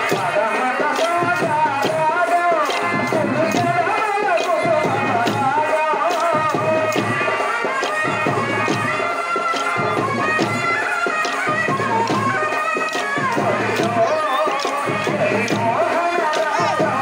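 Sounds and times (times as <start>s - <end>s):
folk music melody: 2.4s - 17.0s.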